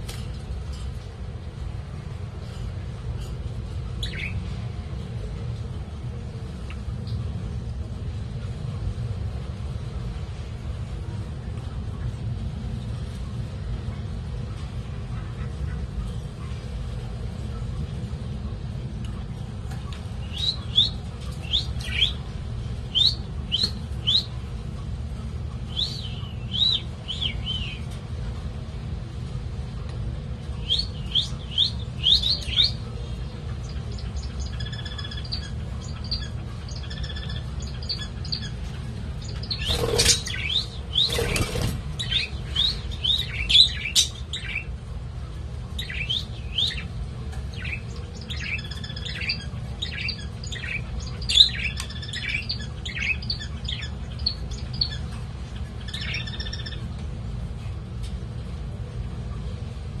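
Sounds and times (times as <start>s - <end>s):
steady low hum: 0.0s - 60.0s
budgerigar chirping: 55.9s - 56.8s.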